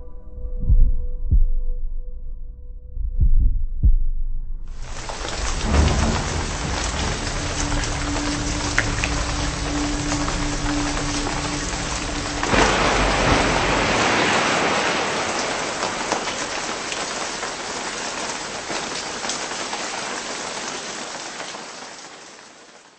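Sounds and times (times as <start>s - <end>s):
heavy rain hissing: 4.8s - 22.9s.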